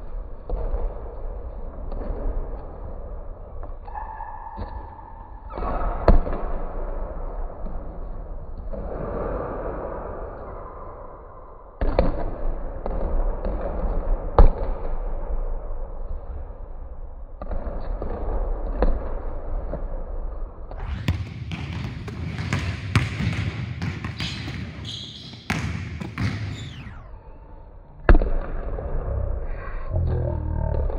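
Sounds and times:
basketballs bouncing on wooden floor: 20.9s - 27.0s.

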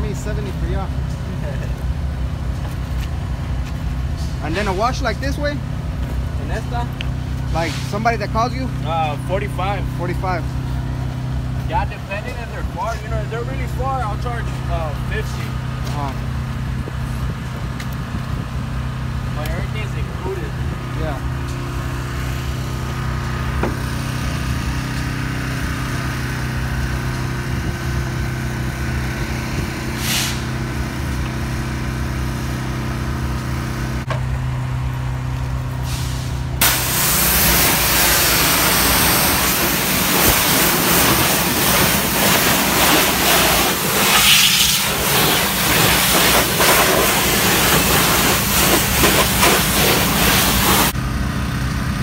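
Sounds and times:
engine hum: 0.0s - 52.0s
pressure washer water jet hissing: 35.9s - 51.0s.

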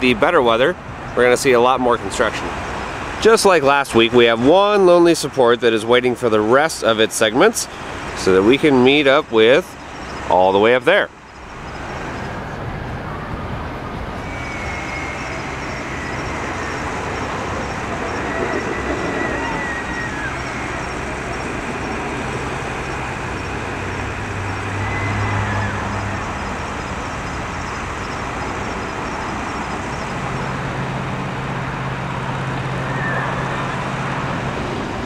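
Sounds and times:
vehicles running past: 0.0s - 35.0s
low engine hum: 11.1s - 35.0s.

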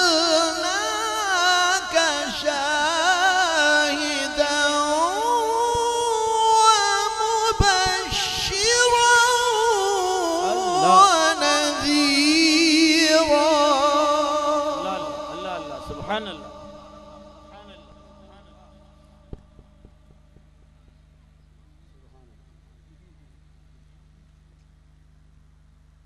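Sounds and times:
man reciting melodic chant: 0.0s - 19.4s.

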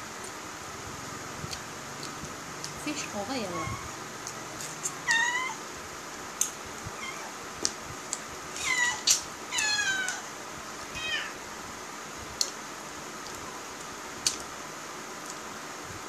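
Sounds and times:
cat meowing: 5.0s - 5.6s, 7.0s - 7.3s, 8.6s - 10.3s, 10.9s - 11.4s.

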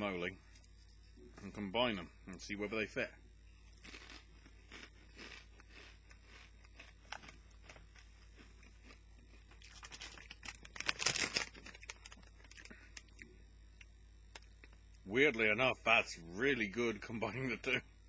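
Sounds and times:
chewing crunchy chips: 3.6s - 13.4s.

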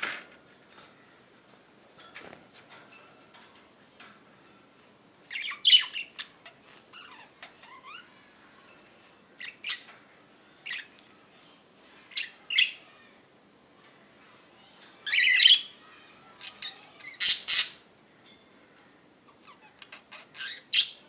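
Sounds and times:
budgerigars chirping and squawking: 5.3s - 8.1s, 16.4s - 17.8s, 19.3s - 21.0s.

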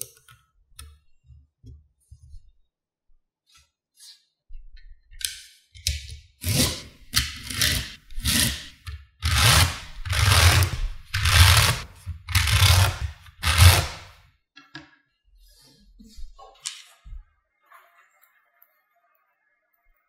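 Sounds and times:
paper card scraping on magnetic balls: 6.4s - 14.2s.

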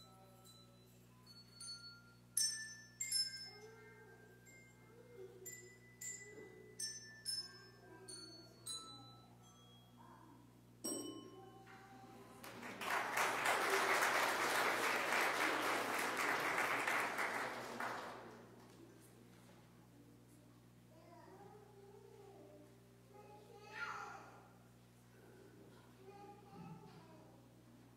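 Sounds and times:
applause: 12.4s - 18.8s.

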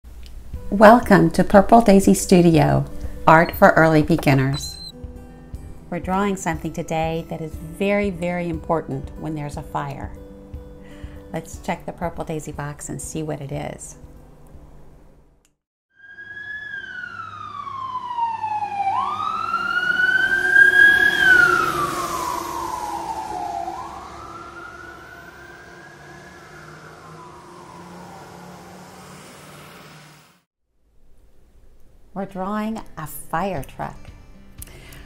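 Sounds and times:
fire truck siren wailing: 15.9s - 30.4s.

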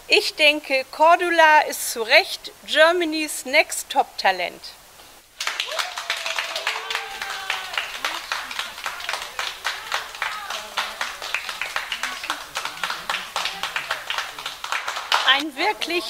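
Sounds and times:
audience clapping: 5.4s - 16.0s
voices talking: 6.5s - 16.0s.

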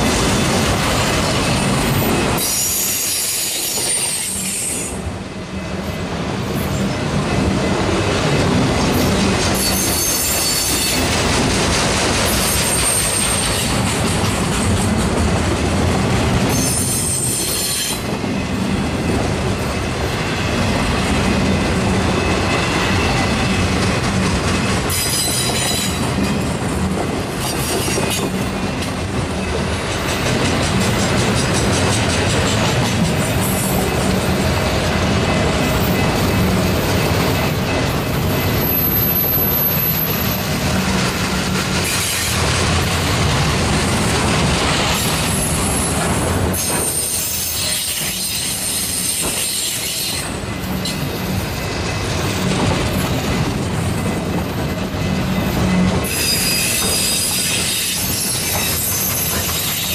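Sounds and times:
train wheels rumbling on rails: 0.0s - 59.9s
metallic wheel squeal: 2.0s - 4.9s, 9.6s - 11.0s, 56.0s - 59.9s.

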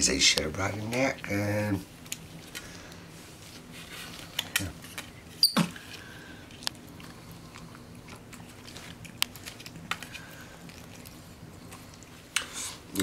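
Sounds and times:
monkey biting and chewing: 3.6s - 12.9s.

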